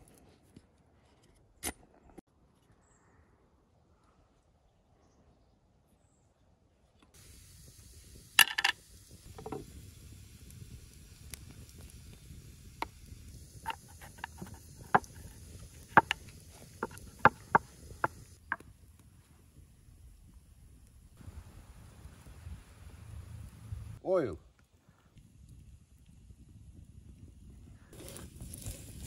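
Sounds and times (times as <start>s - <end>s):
utensils clicking and tapping: 8.4s - 8.8s, 13.6s - 18.6s.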